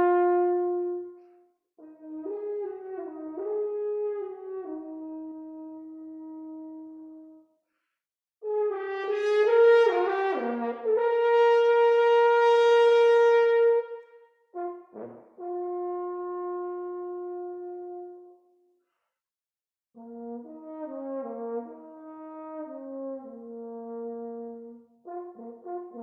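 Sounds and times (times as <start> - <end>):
horn playing: 0.0 - 1.2, 8.5 - 14.0.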